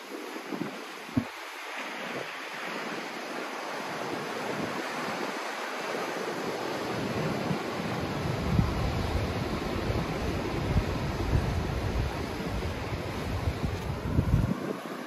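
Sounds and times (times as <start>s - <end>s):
steady rushing noise: 5.5s - 15.0s.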